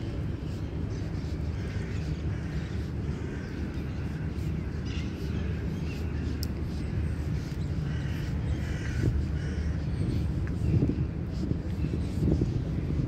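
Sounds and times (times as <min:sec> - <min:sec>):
low outdoor rumble: 0:00.0 - 0:13.0
crows cawing: 0:07.8 - 0:09.8.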